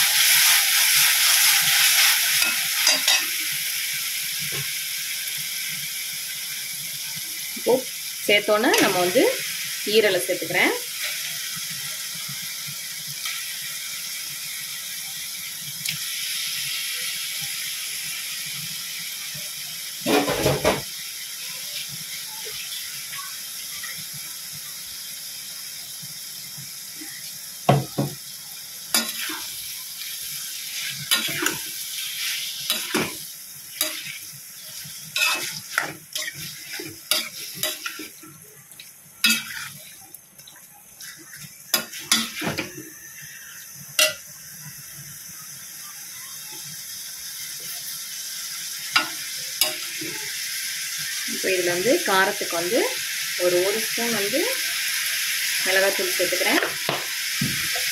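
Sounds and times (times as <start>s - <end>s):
liver sizzling in hot oil: 0.0s - 57.9s
spoon knocking and scraping pan: 2.4s - 3.4s, 20.1s - 20.9s, 27.7s - 28.2s, 31.1s - 31.7s, 32.7s - 33.2s, 41.8s - 42.8s, 56.6s - 57.9s.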